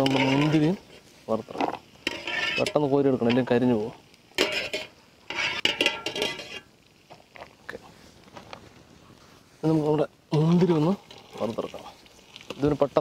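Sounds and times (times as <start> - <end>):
metal strainer clinking on pot: 0.0 - 0.6, 2.0 - 3.5, 4.4 - 6.7
light sizzle: 0.0 - 13.0.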